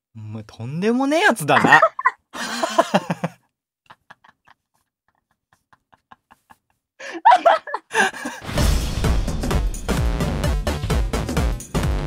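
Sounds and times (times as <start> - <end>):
men laughing loudly: 1.4 - 8.5
electronic dance music: 1.5 - 2.0
stifled laughter: 1.5 - 8.4.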